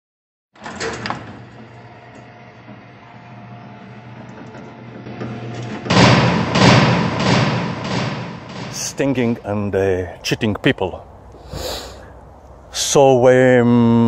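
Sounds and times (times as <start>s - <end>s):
loud door crash: 0.6s - 9.6s
cell door rolling rumble: 0.6s - 10.3s.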